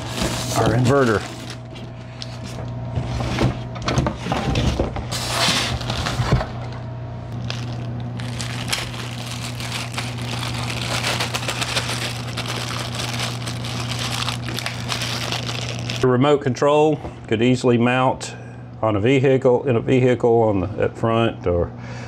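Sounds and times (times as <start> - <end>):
styrofoam scraping cardboard box: 0.0 - 1.6, 5.1 - 6.4
plastic bag crinkling: 0.0 - 1.7, 7.3 - 16.0
steady low hum: 0.0 - 22.0.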